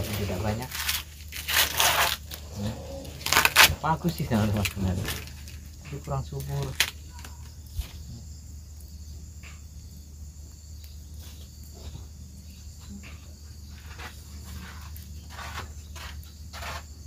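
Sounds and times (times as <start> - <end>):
insects chirping: 0.0 - 17.0
soft rustles and crackles: 11.1 - 16.9.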